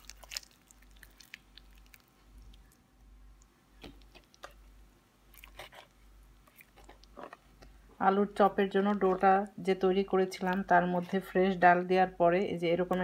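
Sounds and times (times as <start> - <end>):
wet squelching of batter: 0.0 - 11.3
soft clicks of hand mixing: 1.2 - 11.3.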